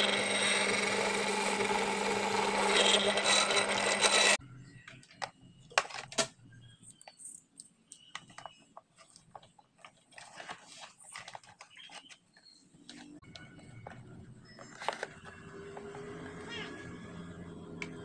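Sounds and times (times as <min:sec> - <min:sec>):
plastic parts clicking and knocking: 0:04.8 - 0:15.9.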